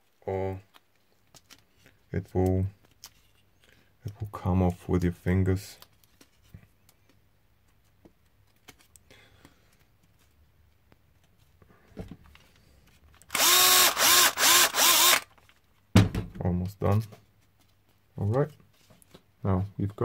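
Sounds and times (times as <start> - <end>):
power drill boring plastic: 13.2 - 15.3.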